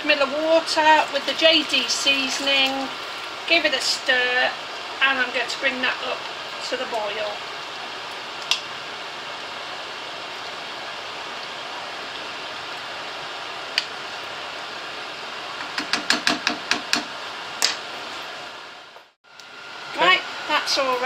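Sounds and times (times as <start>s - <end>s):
wooden spoon knocking on a pan: 15.6s - 17.1s.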